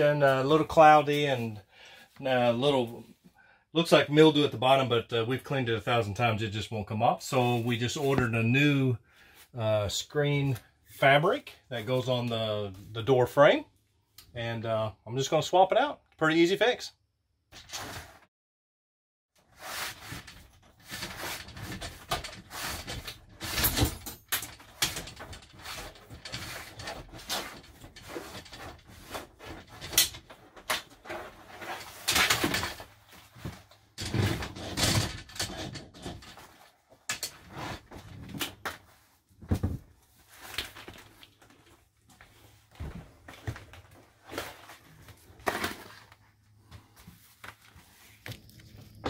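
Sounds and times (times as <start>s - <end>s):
plastic shower curtain rustling: 19.4s - 24.0s.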